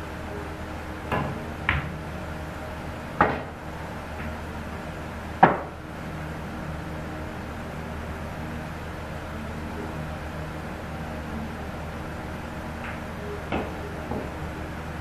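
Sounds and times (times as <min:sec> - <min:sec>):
cue striking ball: 0:01.1 - 0:02.0, 0:03.2 - 0:03.6, 0:05.4 - 0:05.8, 0:12.8 - 0:14.4
billiard balls clacking: 0:03.2 - 0:03.6.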